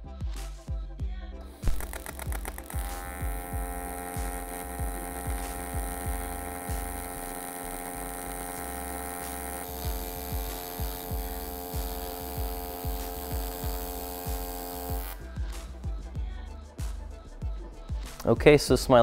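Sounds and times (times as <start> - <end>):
welder arc buzzing: 1.4 - 15.3.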